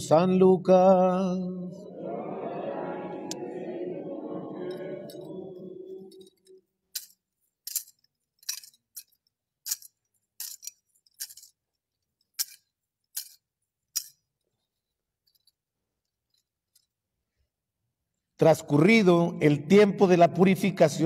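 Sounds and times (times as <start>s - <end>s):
thurible chains clinking: 6.0s - 14.5s.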